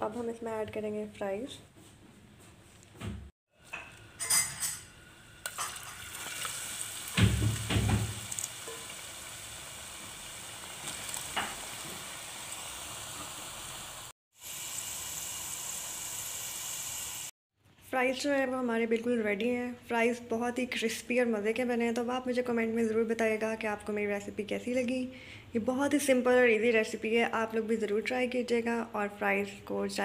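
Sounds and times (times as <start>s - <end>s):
fries sizzling in hot oil: 4.2s - 17.3s.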